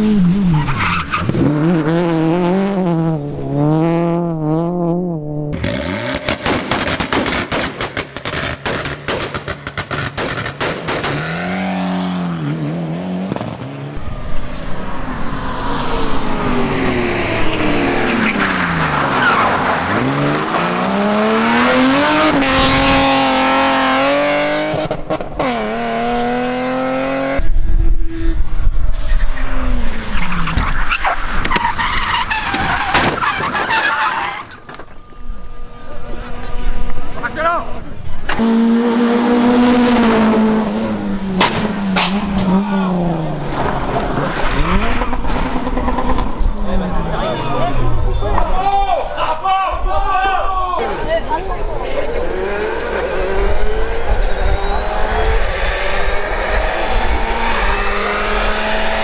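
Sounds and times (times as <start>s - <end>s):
tyres skidding: 0.0s - 4.4s, 5.6s - 27.0s, 29.1s - 49.5s
rally car engine crackling and popping: 0.0s - 12.0s, 13.2s - 14.6s, 17.4s - 26.6s, 27.3s - 48.5s
car engine revving: 0.0s - 27.5s, 29.0s - 48.2s, 50.8s - 59.0s.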